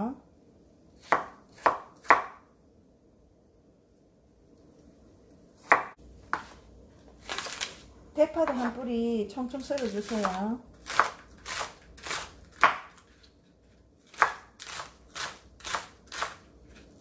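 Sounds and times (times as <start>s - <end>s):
knife chopping on wooden board: 1.0s - 2.4s, 5.6s - 6.6s, 10.1s - 13.2s, 14.0s - 16.8s.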